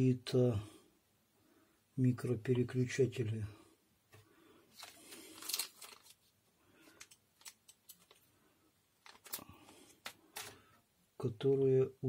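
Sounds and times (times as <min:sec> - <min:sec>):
soft handling rustle: 0:04.1 - 0:10.8.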